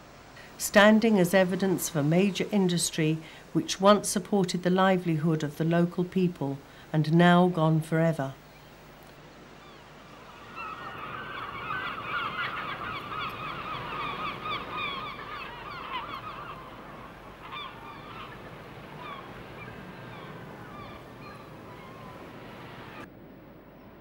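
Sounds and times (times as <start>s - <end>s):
flock of birds calling: 9.6s - 23.1s.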